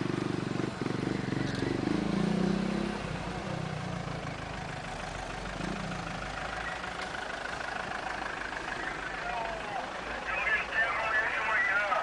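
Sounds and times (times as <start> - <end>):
vehicle engine idling: 3.0 - 12.0.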